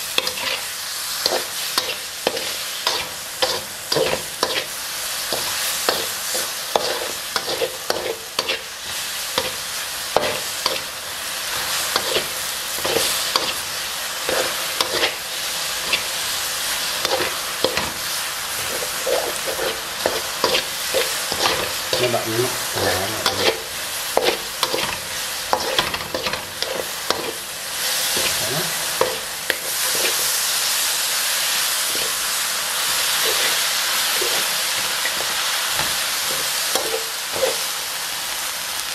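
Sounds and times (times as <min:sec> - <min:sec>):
meat sizzling in a wok: 0:00.0 - 0:38.9
metal spatula scraping a wok: 0:00.1 - 0:30.5, 0:31.7 - 0:37.8.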